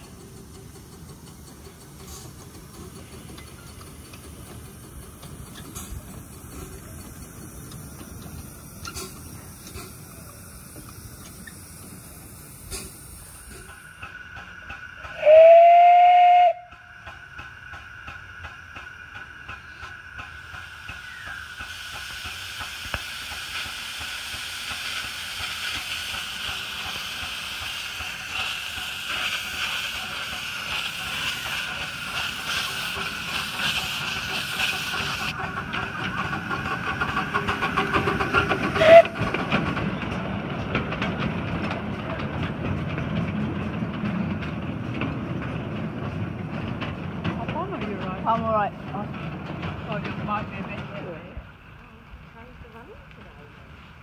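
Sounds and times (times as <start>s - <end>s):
steam hissing: 0.0s - 52.8s
steam locomotive exhaust beat: 0.0s - 54.0s
steam locomotive whistle toot: 15.1s - 17.1s, 38.7s - 39.3s.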